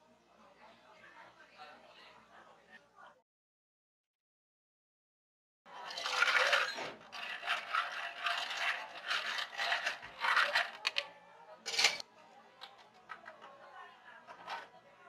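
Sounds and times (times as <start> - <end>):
ice cubes clattering into cup: 5.8 - 11.0
spoon stirring rattling ice: 5.8 - 11.0, 11.7 - 12.0.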